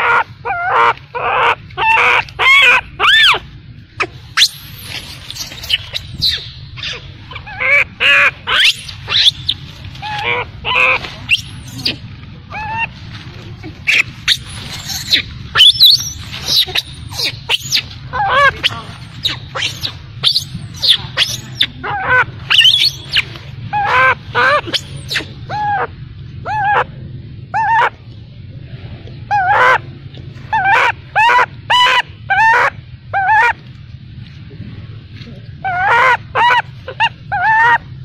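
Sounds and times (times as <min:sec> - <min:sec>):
baby monkey squealing: 0:00.0 - 0:13.0, 0:13.8 - 0:26.9, 0:27.6 - 0:28.0, 0:29.3 - 0:29.8, 0:30.5 - 0:33.6, 0:35.6 - 0:37.8.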